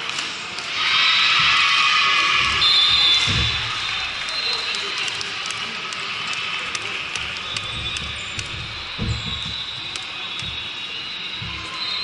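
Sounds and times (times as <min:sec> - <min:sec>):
din of indoor hall: 0:00.0 - 0:12.0
ball bouncing on floor: 0:07.2 - 0:12.0.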